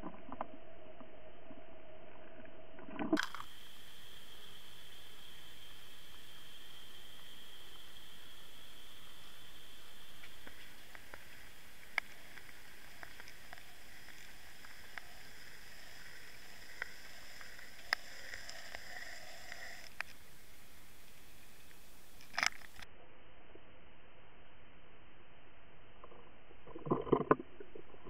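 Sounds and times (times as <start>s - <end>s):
faint high whine: 0.0s - 26.7s
water rushing underwater: 2.3s - 21.6s.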